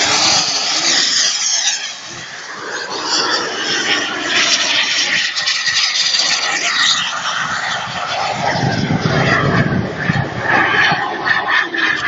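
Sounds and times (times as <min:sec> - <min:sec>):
model aircraft engine passing: 0:00.0 - 0:12.0.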